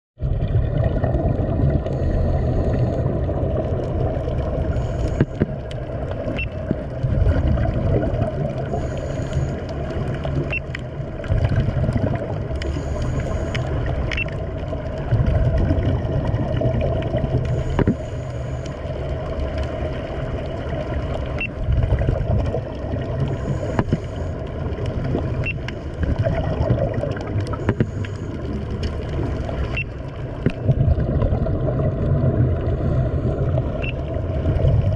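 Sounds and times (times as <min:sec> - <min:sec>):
underwater rush of water and bubbles: 0:00.2 - 0:34.9
faint clicks: 0:09.2 - 0:11.3, 0:12.5 - 0:14.8, 0:23.6 - 0:26.2.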